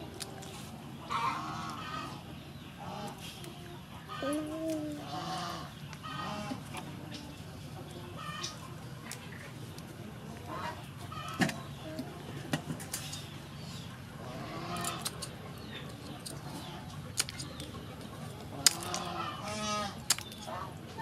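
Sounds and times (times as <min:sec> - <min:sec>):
hens clucking: 0:00.0 - 0:21.0
crab shells cracking: 0:14.8 - 0:17.7, 0:18.5 - 0:19.2, 0:19.9 - 0:20.5.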